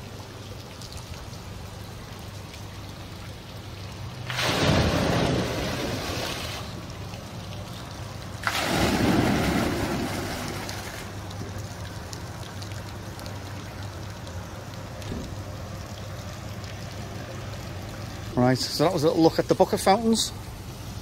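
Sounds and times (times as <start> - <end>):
water trickling: 0.0 - 21.0
water crashing into basin: 4.2 - 6.8, 8.4 - 11.1.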